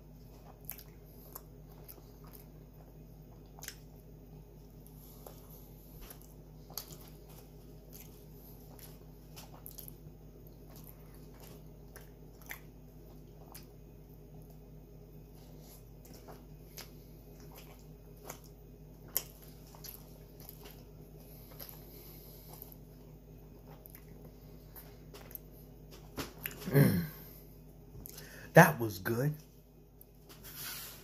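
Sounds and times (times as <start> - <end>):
person chewing: 0.0 - 14.6, 15.3 - 27.4, 28.0 - 28.4
wet mouth clicks and smacks: 0.6 - 2.5, 3.3 - 4.0.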